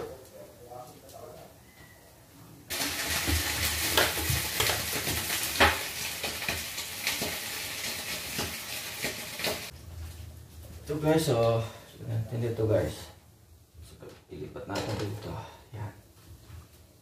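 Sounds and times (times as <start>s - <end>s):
fish sizzling in oil: 2.7s - 9.8s.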